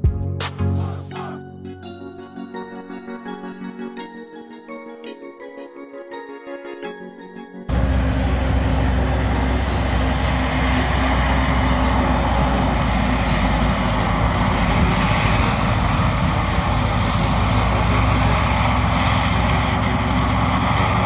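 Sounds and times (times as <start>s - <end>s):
tractors running: 7.7s - 21.0s.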